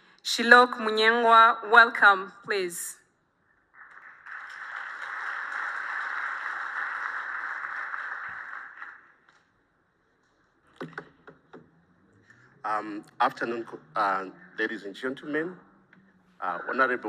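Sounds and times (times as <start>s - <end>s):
audience applauding: 3.8s - 9.5s.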